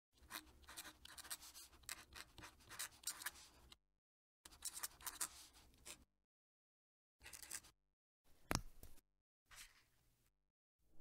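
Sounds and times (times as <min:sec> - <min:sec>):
pen nib scratching paper: 0:00.2 - 0:03.6, 0:04.5 - 0:06.0.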